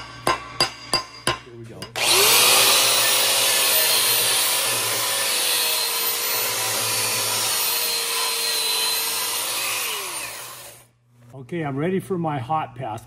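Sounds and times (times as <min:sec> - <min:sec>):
angle grinder wire wheel on steel: 0:01.9 - 0:10.8.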